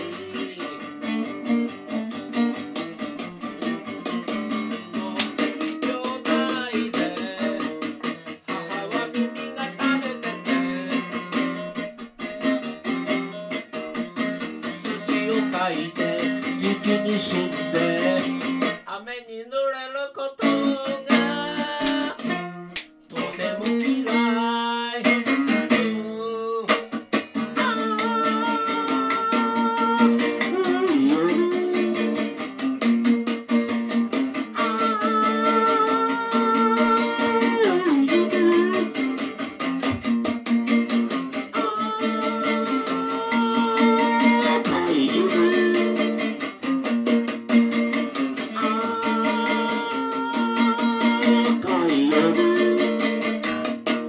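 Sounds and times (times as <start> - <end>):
man singing: 0.0 - 1.4, 3.8 - 11.8, 14.4 - 22.4, 23.1 - 32.7, 34.3 - 40.2, 41.4 - 46.7, 48.1 - 53.7
electric guitar playing: 0.0 - 18.9, 20.4 - 54.0.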